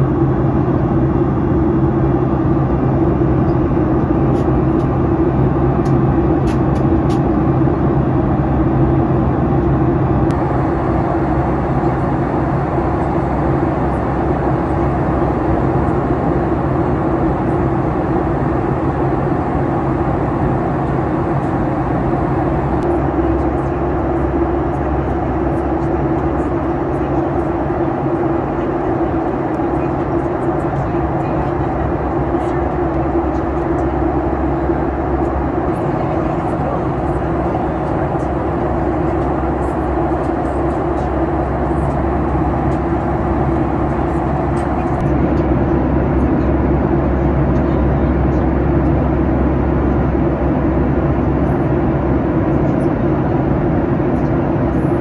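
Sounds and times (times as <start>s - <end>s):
jet engine drone: 0.0s - 55.0s
low steady hum: 0.0s - 55.0s
airflow rush: 10.3s - 55.0s.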